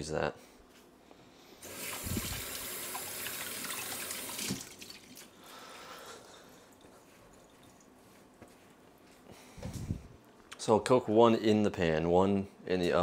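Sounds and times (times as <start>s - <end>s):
water running from a tap: 1.6s - 5.3s
quiet trickle of water: 6.7s - 7.9s.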